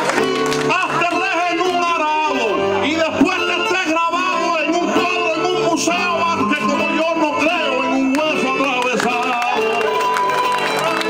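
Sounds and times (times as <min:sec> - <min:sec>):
man singing: 0:00.6 - 0:11.0.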